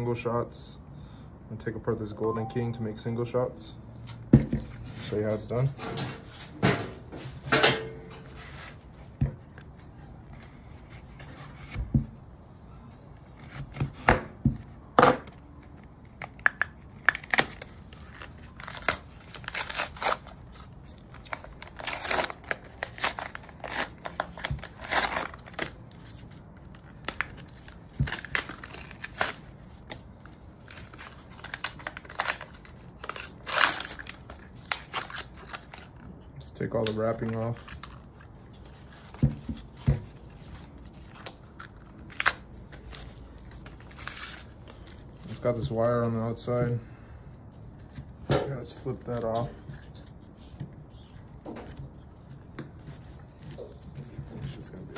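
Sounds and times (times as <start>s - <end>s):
cardboard and paper tearing: 17.1s - 29.9s, 30.6s - 36.1s.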